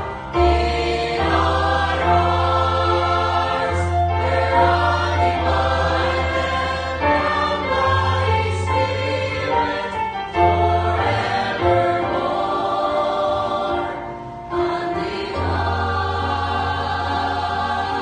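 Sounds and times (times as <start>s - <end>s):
choir singing a hymn: 0.0s - 18.0s.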